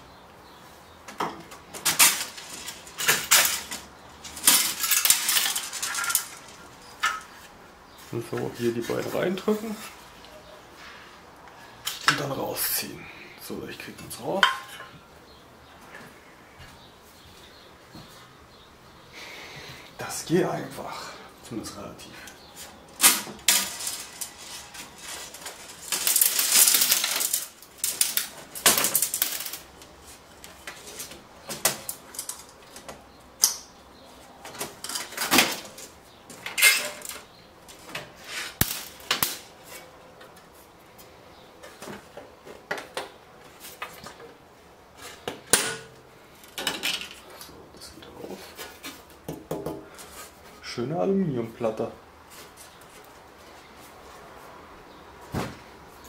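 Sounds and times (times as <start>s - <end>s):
metal scraping rattle: 1.8s - 7.3s, 23.0s - 29.6s, 36.4s - 37.3s.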